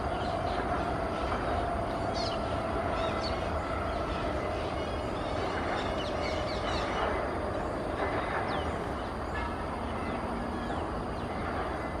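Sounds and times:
rumbling background noise: 0.0 - 12.0.

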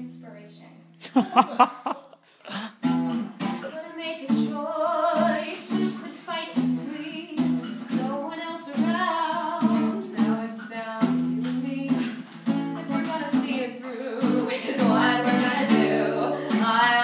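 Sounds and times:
strummed acoustic guitar: 2.7 - 17.0
women singing: 3.7 - 17.0.

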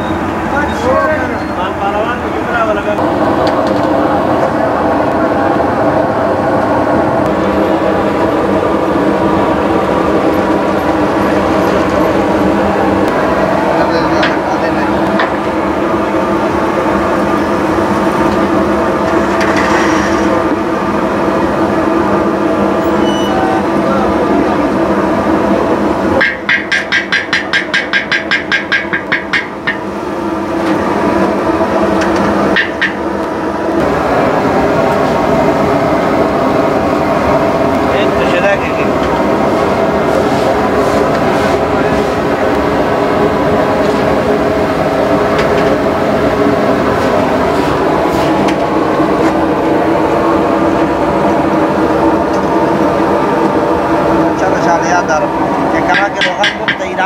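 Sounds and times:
loud mechanical drone: 0.0 - 57.0
steady rumble: 0.0 - 57.0
wooden stick tapping steel wok: 26.2 - 29.8, 56.0 - 56.9.

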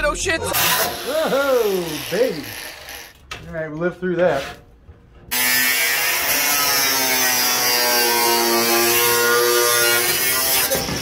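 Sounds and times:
angle grinder cutting steel: 0.5 - 3.2, 5.3 - 11.0.

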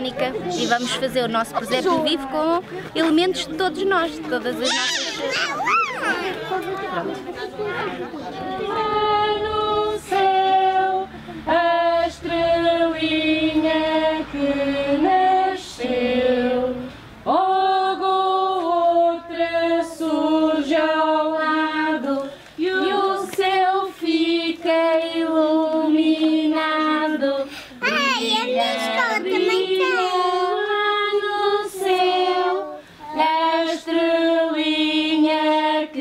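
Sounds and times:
women and children singing: 8.2 - 36.0.

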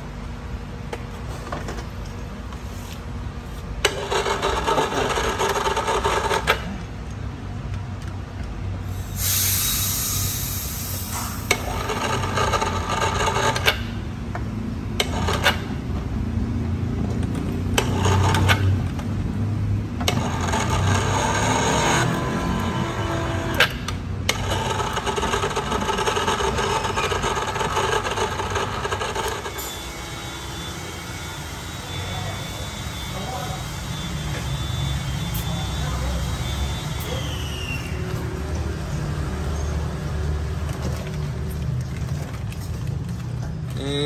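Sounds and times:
brief hiss: 9.0 - 11.4.

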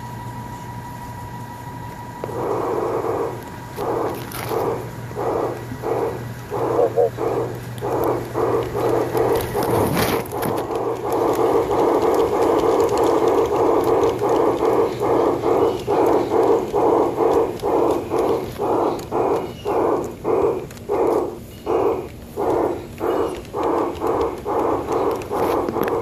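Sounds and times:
model steam locomotive chuffing: 0.0 - 26.0
scraping crackle: 6.6 - 16.2.

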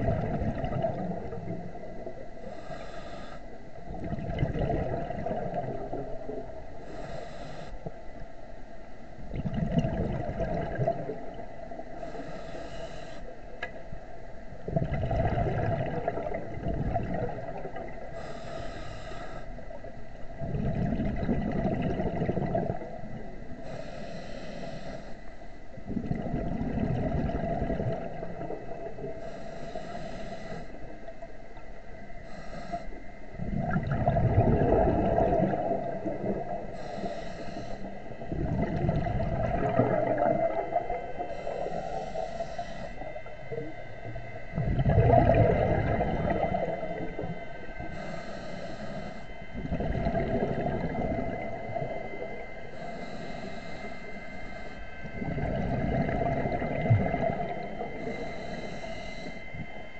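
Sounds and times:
bubbling exhale: 0.0 - 7.9, 9.2 - 13.3, 14.6 - 19.8, 20.4 - 30.9, 32.2 - 59.7
regulator hissing inhale: 2.2 - 3.8, 6.7 - 8.2, 11.8 - 13.5, 17.9 - 20.0, 22.8 - 25.8, 29.0 - 33.4, 35.4 - 38.3, 39.6 - 44.5, 45.6 - 59.9.

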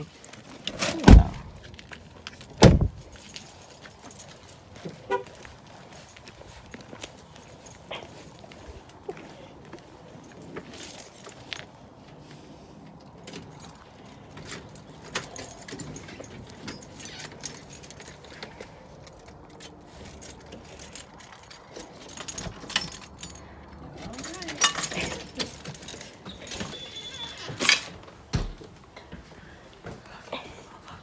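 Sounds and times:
rustle of blankets and bags: 0.0 - 31.0
jangling keys clicks: 13.0 - 28.0.

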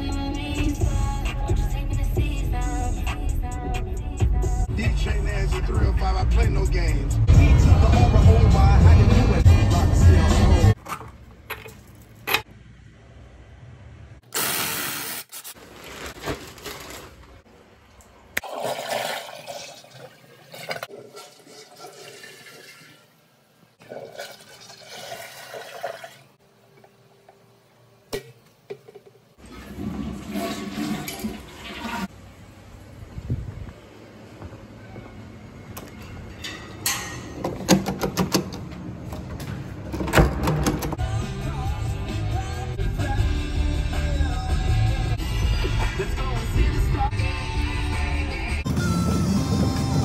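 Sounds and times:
toilet flushing: 18.4 - 23.2, 23.8 - 26.4, 29.4 - 32.1.

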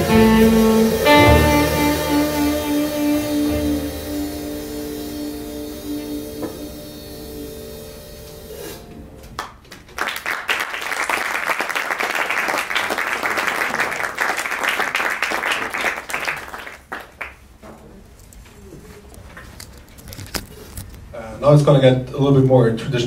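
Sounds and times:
jazz quartet chord ringing: 0.0 - 9.4
audience applauding: 9.4 - 17.6.

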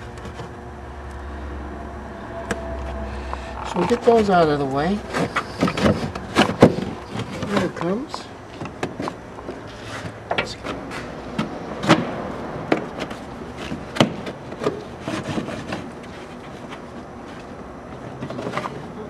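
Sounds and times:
trim rubbing and scraping: 2.4 - 12.1, 12.8 - 19.0.

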